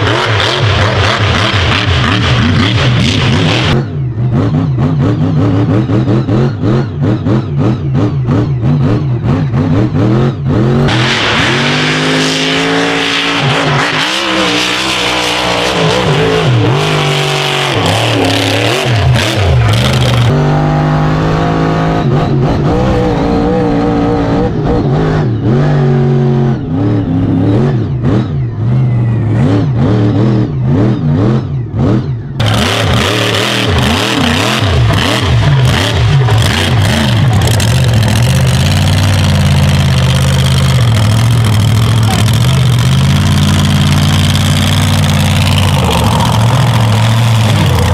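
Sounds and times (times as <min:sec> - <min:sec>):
truck engine revving hard: 0:00.0 - 0:47.9.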